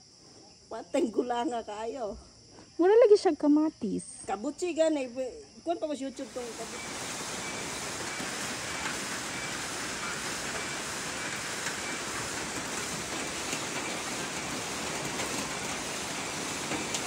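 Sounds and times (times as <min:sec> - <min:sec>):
heavy rain on foliage and gravel: 0:06.2 - 0:17.0.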